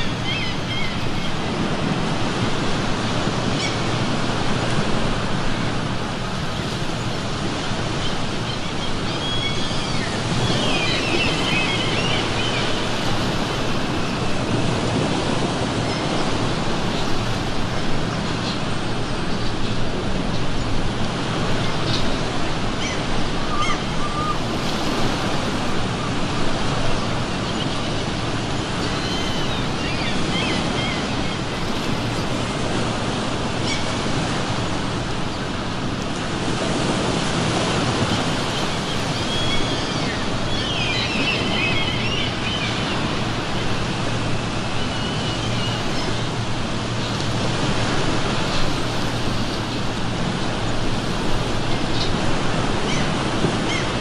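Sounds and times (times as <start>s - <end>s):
seagulls calling: 0.0s - 1.9s, 7.7s - 17.2s, 21.5s - 34.5s, 37.4s - 54.0s
ocean surf on shore: 0.0s - 54.0s.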